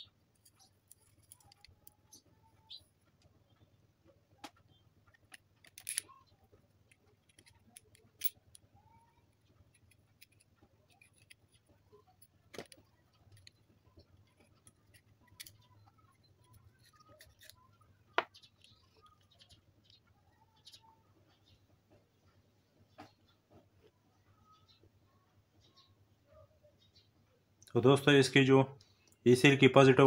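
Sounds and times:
torch parts clicking and tapping: 0.3 - 2.2, 4.4 - 20.0.

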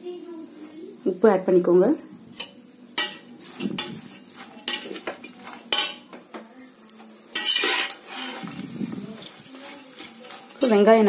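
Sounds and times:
metal spatula scraping pot: 2.3 - 6.1, 7.3 - 11.0.

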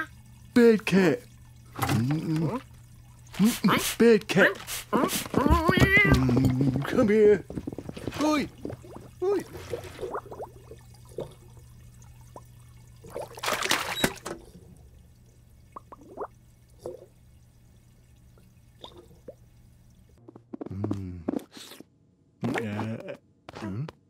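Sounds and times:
water splashing: 0.0 - 19.7
bubbly blips: 5.3 - 14.1, 15.7 - 17.1.

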